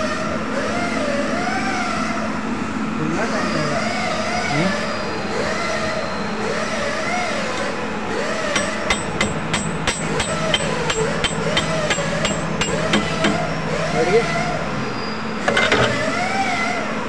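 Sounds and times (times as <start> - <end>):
ringing metal-on-metal taps: 8.5 - 13.4.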